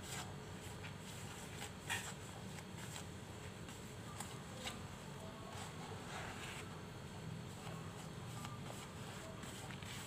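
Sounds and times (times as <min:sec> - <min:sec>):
dough mixed by hand in bowl: 0:00.0 - 0:10.0
low steady hum: 0:00.0 - 0:10.0.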